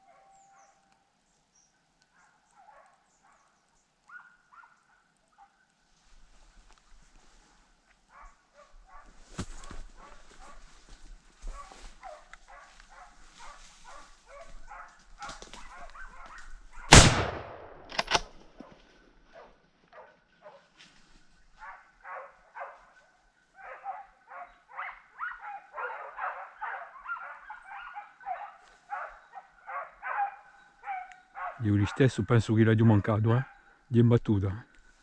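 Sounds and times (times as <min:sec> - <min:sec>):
dogs barking: 0:00.0 - 0:00.8, 0:02.1 - 0:05.6, 0:08.1 - 0:16.9, 0:18.6 - 0:20.7, 0:21.6 - 0:32.3
gunshots: 0:16.9 - 0:18.3.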